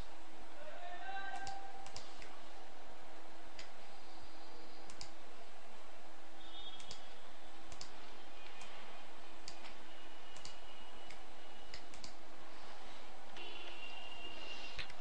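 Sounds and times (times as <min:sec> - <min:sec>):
low hum and hiss: 0:00.0 - 0:15.0
computer mouse clicking: 0:01.3 - 0:02.4, 0:03.5 - 0:03.8, 0:04.8 - 0:05.2, 0:06.7 - 0:08.8, 0:09.4 - 0:12.2, 0:14.8 - 0:15.0.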